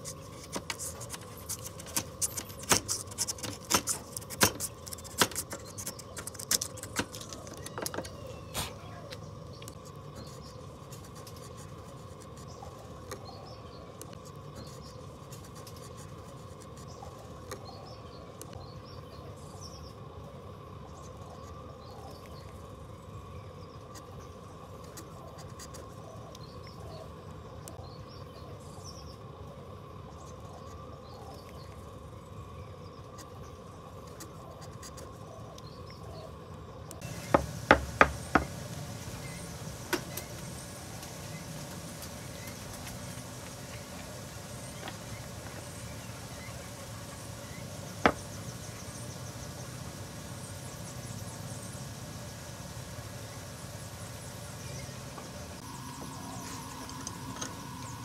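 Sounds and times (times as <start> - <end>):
low workshop background: 0.0 - 19.5, 33.0 - 51.7
wooden knocks on workbench: 37.2 - 38.6.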